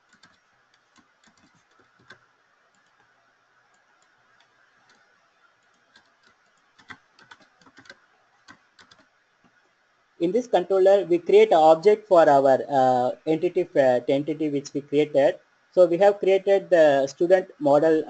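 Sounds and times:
computer keys clicking: 0.0s - 9.1s.

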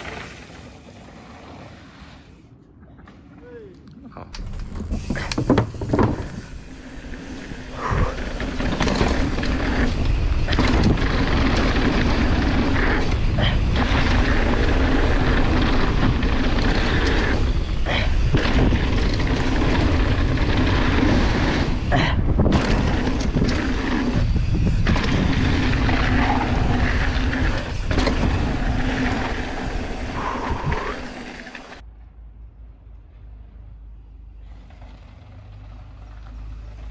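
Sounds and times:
bike knocks and rattles: 4.4s - 30.1s
tyres rolling on dirt: 4.4s - 31.8s, 34.3s - 36.9s
wind on microphone: 4.9s - 31.2s.

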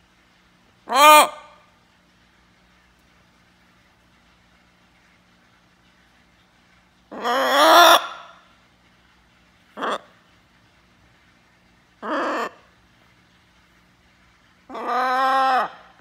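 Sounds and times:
macaw calling: 7.1s - 8.3s, 14.7s - 15.8s.

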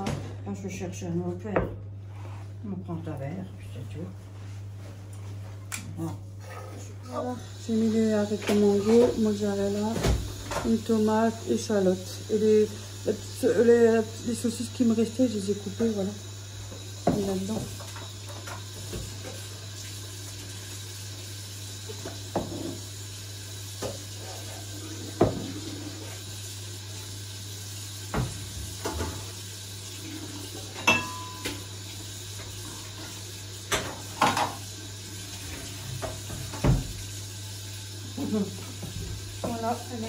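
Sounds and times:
dishes and utensils clinking: 30.6s - 31.7s.

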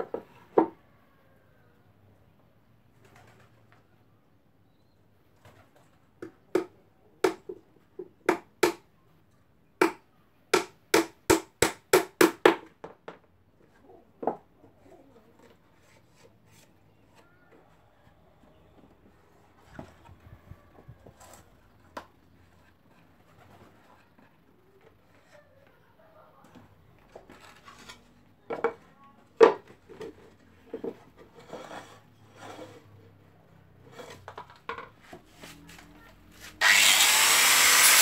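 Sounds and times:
hammer knocking nails into wood: 10.6s - 13.0s.

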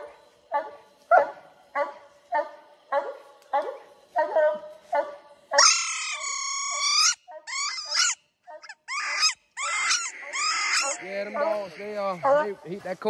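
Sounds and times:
dog barks: 0.0s - 5.8s
hounds bawling: 5.6s - 12.6s.

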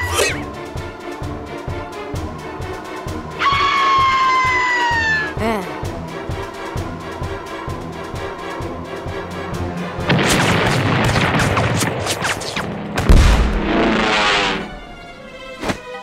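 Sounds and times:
background music: 0.0s - 16.0s
cartoon gunfire cracks and blasts: 10.1s - 14.4s
big low explosion boom: 13.0s - 14.4s.

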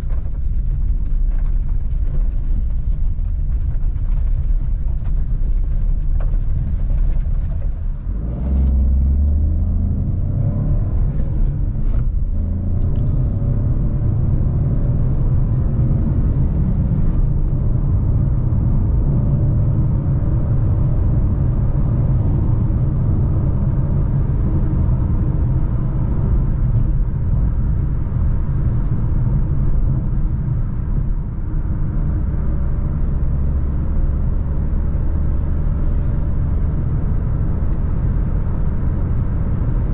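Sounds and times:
car engine rumble: 0.0s - 39.9s
road noise: 0.0s - 39.9s.

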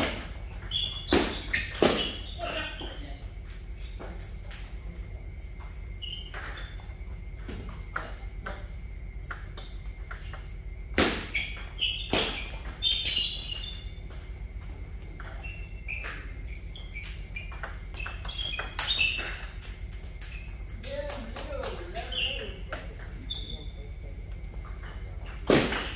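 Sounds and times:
table tennis balls clicking: 15.0s - 23.5s.

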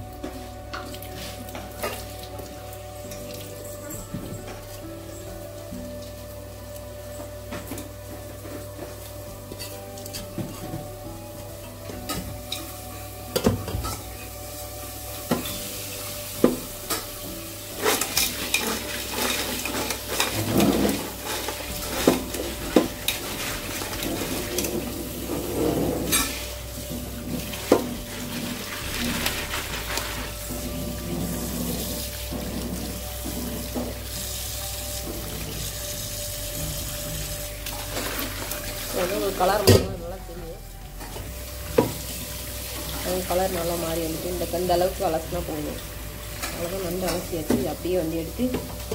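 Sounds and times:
hands stirring crab in water: 6.8s - 39.8s.

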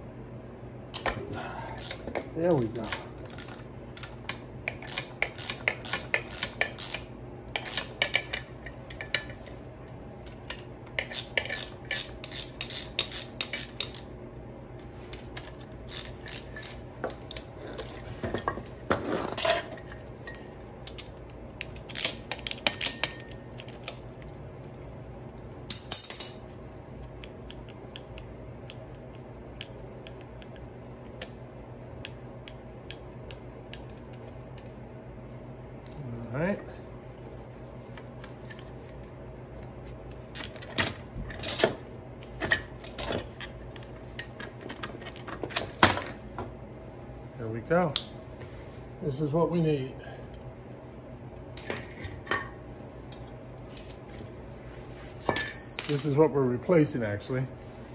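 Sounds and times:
metal parts clinking: 44.7s - 46.3s, 55.3s - 56.4s.

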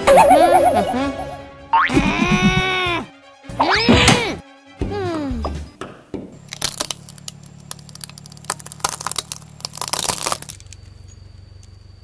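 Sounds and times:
plastic toys cracking under tyre: 6.4s - 11.0s
low steady hum: 6.4s - 12.0s.

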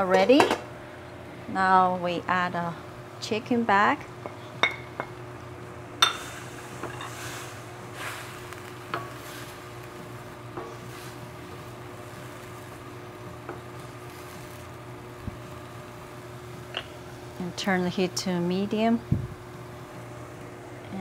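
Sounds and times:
light sizzle: 0.0s - 21.0s
steady low hum: 0.0s - 21.0s.

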